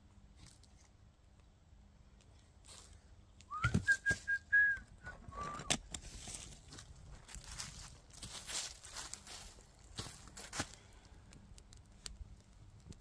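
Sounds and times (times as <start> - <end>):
person whistling: 3.5 - 5.8.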